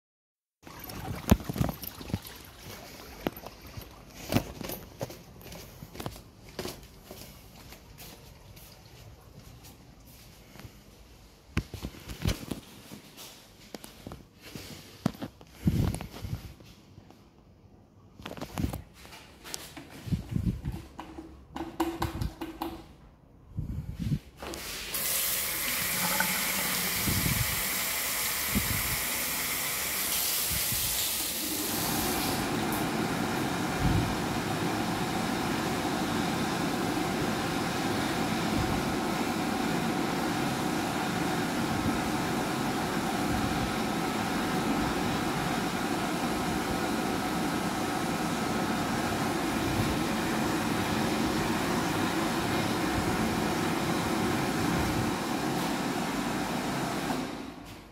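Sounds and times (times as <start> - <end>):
hand dryer blowing: 24.4 - 57.7
tap running: 25.0 - 30.2.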